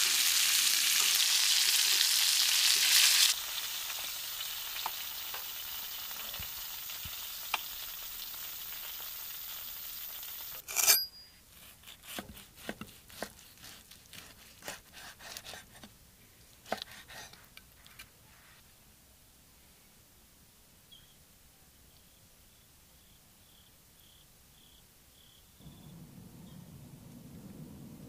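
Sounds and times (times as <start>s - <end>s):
steak sizzling: 0.0s - 11.1s
knife cutting on wooden board: 11.6s - 15.9s.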